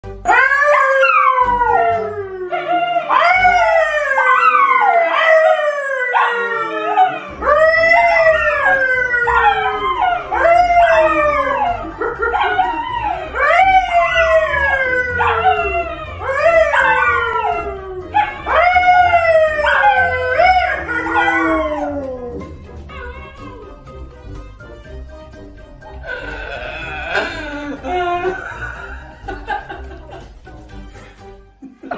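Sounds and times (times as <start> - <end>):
man howling: 0.3 - 23.7, 26.0 - 28.9
dog howling: 0.3 - 23.8.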